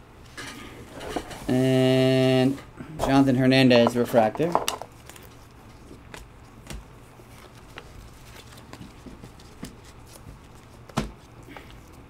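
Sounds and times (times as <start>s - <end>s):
cards clicking and rustling: 4.1s - 12.0s.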